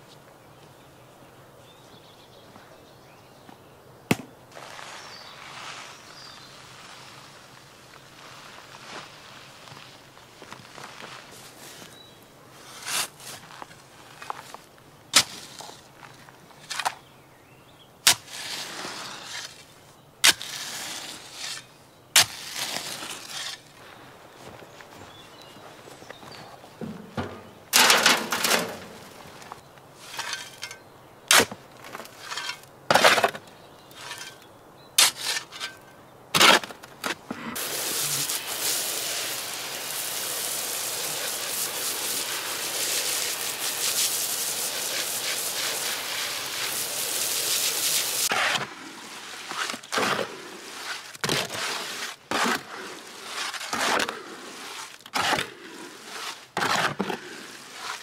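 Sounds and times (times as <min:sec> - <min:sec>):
hoe scraping wet concrete: 0:12.6 - 0:14.6, 0:18.1 - 0:23.8, 0:26.8 - 0:35.8, 0:36.4 - 0:58.0
bucket knocking on wheelbarrow: 0:26.8 - 0:29.0
water rushing from hose: 0:37.6 - 0:48.3.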